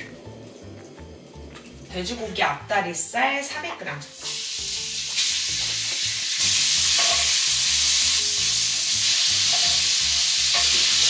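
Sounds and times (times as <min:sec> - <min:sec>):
meat sizzling in a hot pan: 0:04.1 - 0:11.0.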